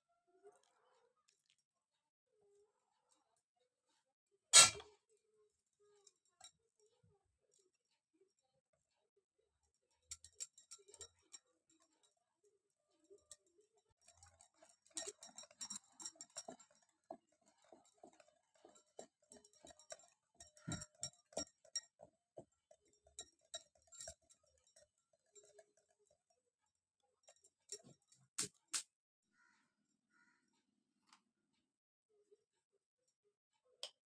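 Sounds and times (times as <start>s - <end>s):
batter stirred in glass bowl: 4.6s - 28.8s.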